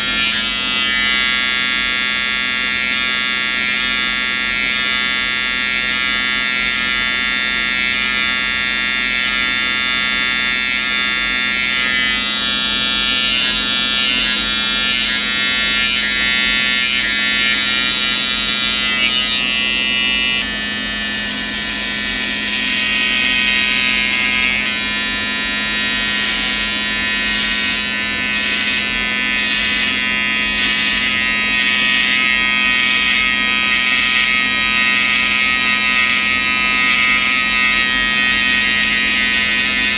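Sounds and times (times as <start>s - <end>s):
electric hair trimmer buzzing: 0.0s - 39.9s.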